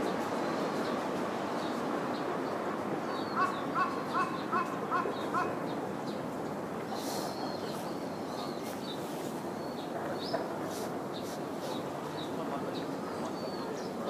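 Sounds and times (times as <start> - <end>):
background hiss: 0.0 - 14.0
bird calling: 3.1 - 5.8.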